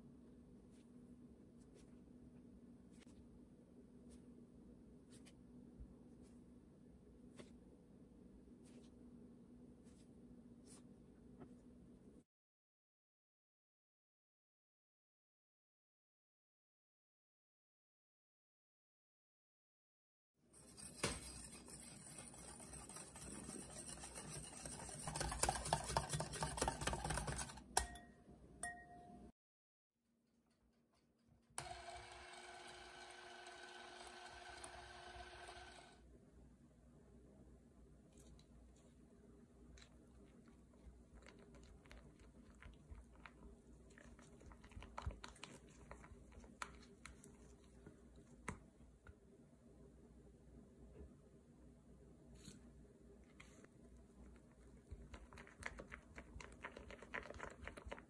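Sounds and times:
spatula squishing buttercream: 20.6 - 27.8, 38.1 - 49.2, 52.4 - 58.0
whisk scraping a glass bowl: 20.6 - 27.8
whisk tapping on bowl: 20.8 - 28.0
spatula tapping glass bowl: 25.0 - 29.2.

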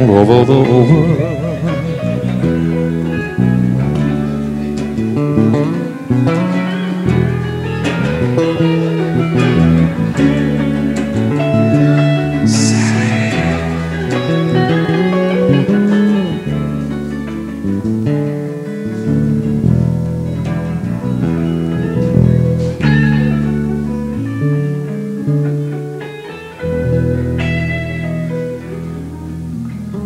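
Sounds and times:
live band guitars playing: 0.5 - 29.9
bass line: 12.4 - 16.8.

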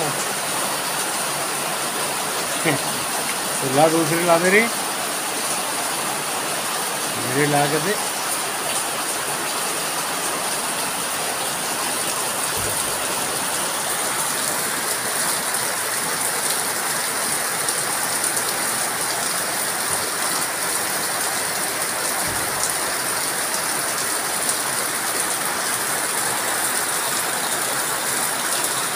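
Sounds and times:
heavy rain on tiles and leaves: 0.0 - 28.9.

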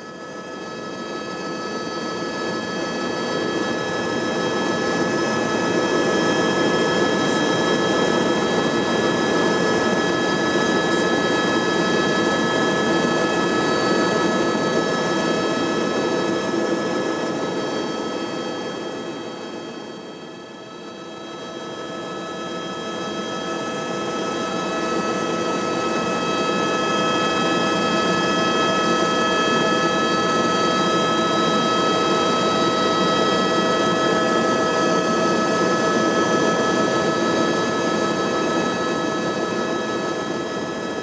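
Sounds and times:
aircraft engine drone: 0.0 - 41.0.

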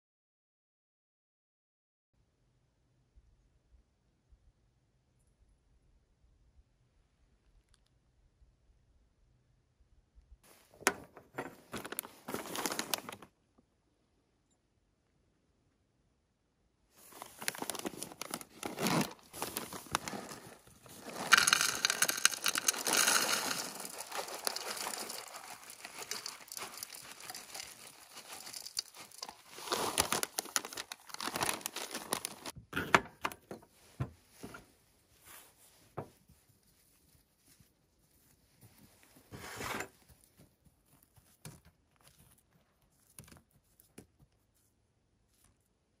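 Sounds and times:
rustles and clicks: 10.5 - 13.3, 17.0 - 32.6
plastic bag crinkling: 10.8 - 13.3, 17.0 - 32.6
granola pouring into a bowl: 17.1 - 32.6.

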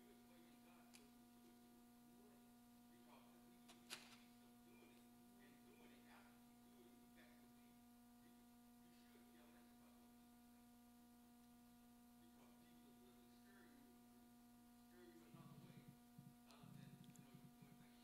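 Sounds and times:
electrical hum: 0.0 - 18.0
low voice: 14.8 - 18.0.

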